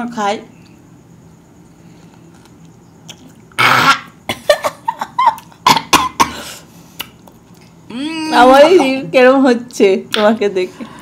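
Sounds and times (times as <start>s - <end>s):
woman coughing: 5.6s - 6.5s.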